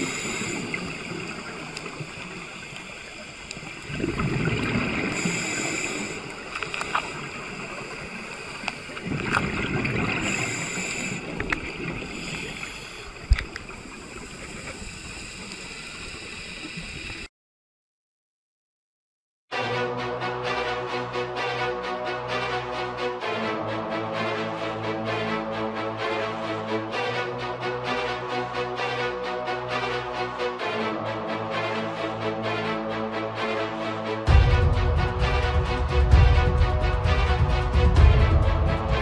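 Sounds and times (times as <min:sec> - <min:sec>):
scuba exhaust bubbles: 0:00.0 - 0:17.2
underwater watery hiss: 0:00.0 - 0:17.3.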